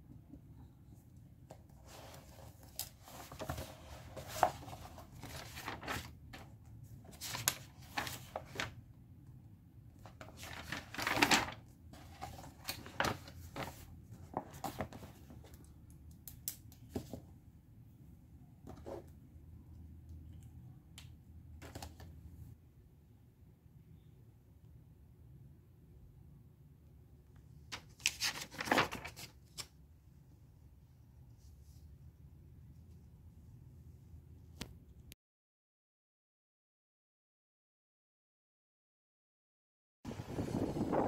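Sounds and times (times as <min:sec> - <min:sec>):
paper rustling: 0:01.7 - 0:08.8, 0:10.0 - 0:15.6, 0:27.7 - 0:29.7
pages turning: 0:01.8 - 0:08.8, 0:10.0 - 0:15.6, 0:27.7 - 0:29.8.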